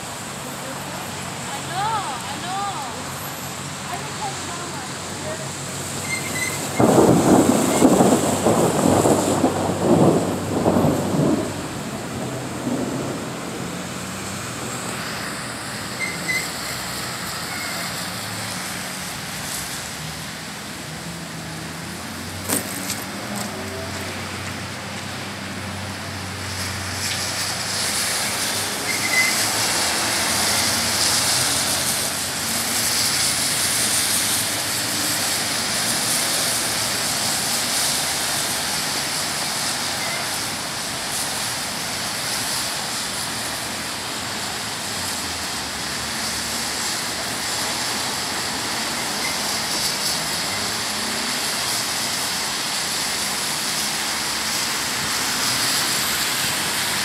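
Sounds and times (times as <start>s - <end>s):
tyres swishing on wet road: 0.0s - 57.0s.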